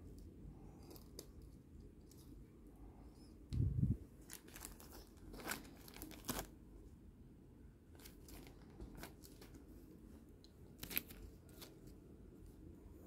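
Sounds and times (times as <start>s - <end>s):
plastic bag rustling: 4.2s - 6.5s.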